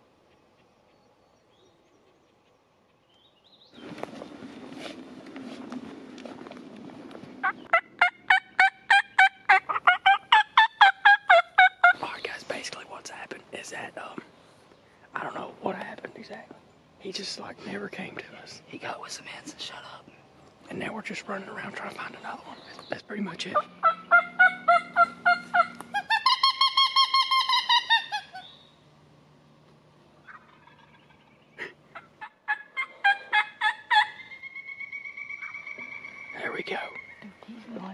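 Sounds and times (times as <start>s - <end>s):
turkey gobble: 7.4s - 12.0s, 23.6s - 28.5s, 30.2s - 37.2s
turkey yelps: 7.4s - 12.0s, 23.6s - 28.6s, 30.2s - 31.3s, 31.9s - 37.2s.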